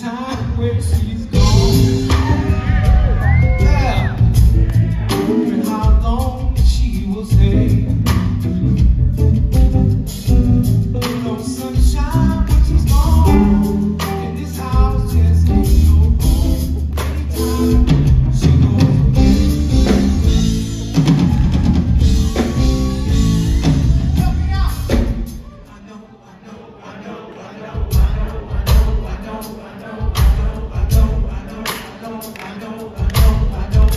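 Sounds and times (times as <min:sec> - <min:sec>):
person singing: 0:00.0 - 0:08.1, 0:10.6 - 0:33.9
drum kit: 0:00.0 - 0:25.7, 0:27.7 - 0:33.9
electric bass: 0:00.8 - 0:25.3.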